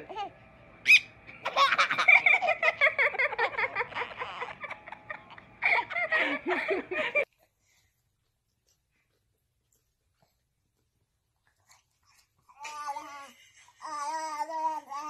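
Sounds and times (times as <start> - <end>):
baby laughing: 0.0 - 7.2.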